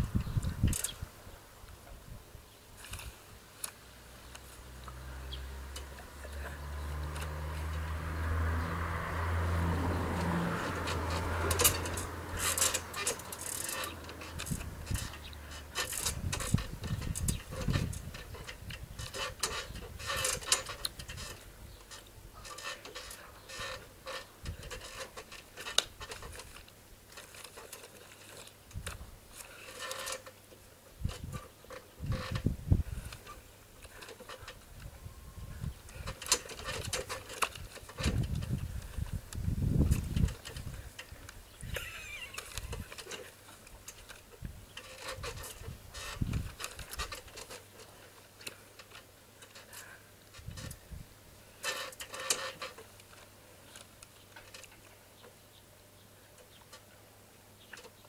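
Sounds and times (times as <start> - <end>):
low engine hum: 4.4 - 17.2.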